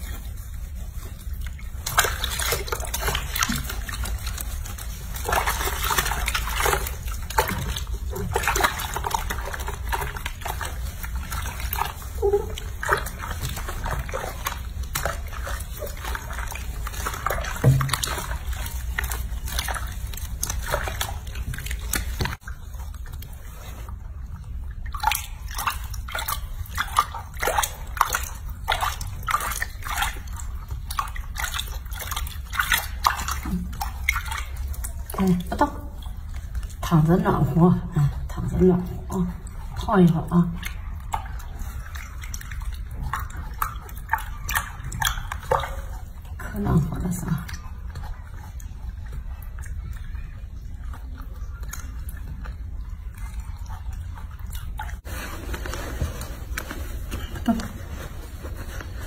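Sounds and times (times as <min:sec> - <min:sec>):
water splashing in sink: 0:00.0 - 0:59.0.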